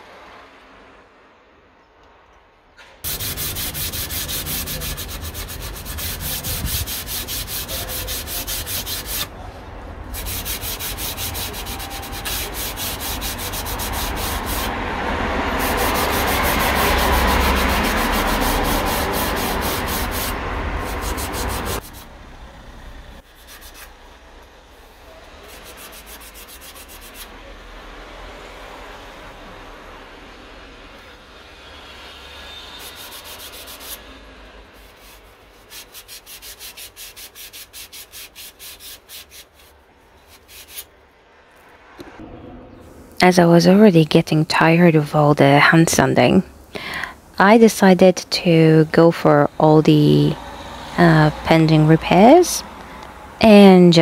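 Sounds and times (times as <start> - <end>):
sandpaper rubbing on wood: 3.0 - 9.3, 10.1 - 14.8, 15.4 - 22.1, 23.2 - 24.0, 25.2 - 27.4, 32.6 - 34.1, 34.7 - 40.9.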